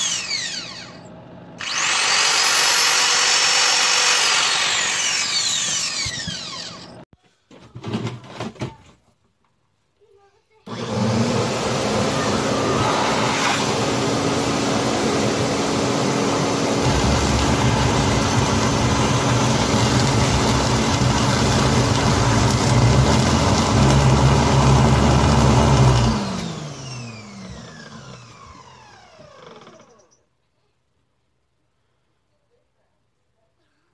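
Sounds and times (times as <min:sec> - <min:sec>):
motor winding down whine: 0:00.0 - 0:07.0, 0:10.7 - 0:30.2
shop vacuum motor running: 0:00.0 - 0:07.0, 0:10.7 - 0:30.0.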